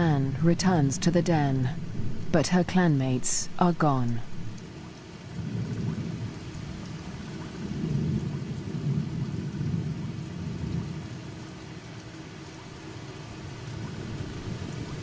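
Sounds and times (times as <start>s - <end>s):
steady rain: 0.0s - 15.0s
rolling thunder rumble: 4.3s - 11.5s.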